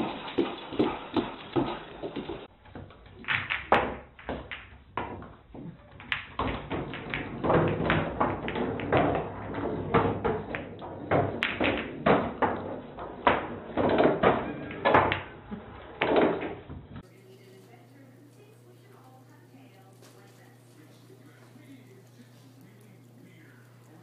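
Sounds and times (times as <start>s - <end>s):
billiard balls knocking together: 0.0s - 17.1s.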